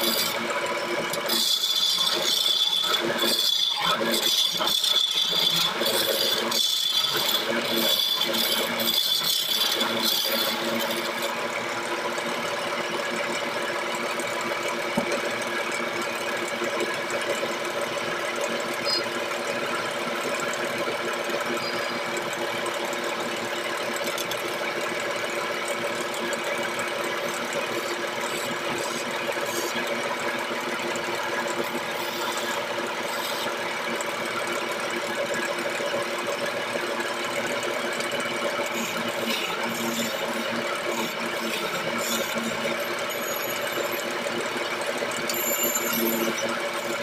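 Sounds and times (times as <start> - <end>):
turning tool scraping wood: 0.0 - 0.5, 1.1 - 11.8, 23.9 - 24.7, 25.8 - 30.2, 31.4 - 33.6, 38.0 - 44.2
lathe motor humming: 0.0 - 47.0.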